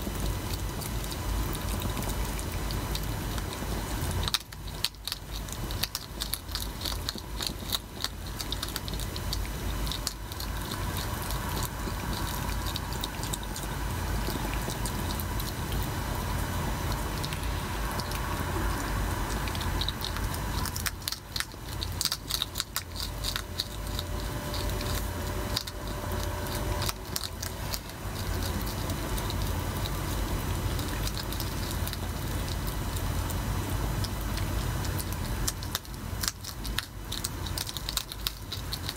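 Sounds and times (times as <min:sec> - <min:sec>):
hedgehogs crunching dry food: 0:00.0 - 0:38.9.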